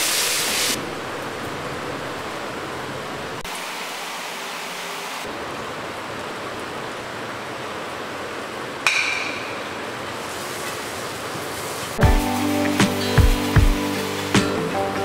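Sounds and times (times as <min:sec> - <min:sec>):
masala sizzling on a pan: 0:10.2 - 0:15.0.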